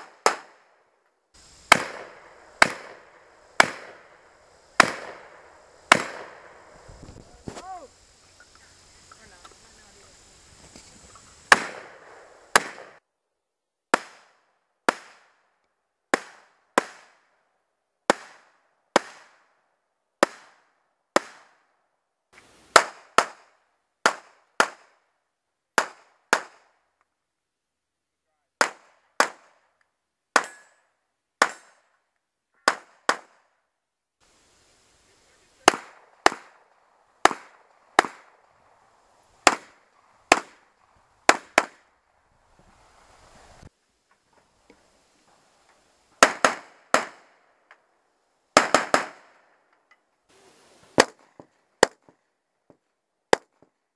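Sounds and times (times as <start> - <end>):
gunshots with echo: 1.7 - 6.9, 11.5 - 13.0.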